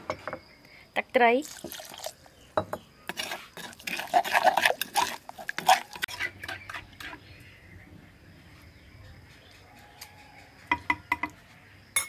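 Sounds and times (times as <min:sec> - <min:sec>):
metal spoon scraping wooden mortar: 0:03.1 - 0:07.3.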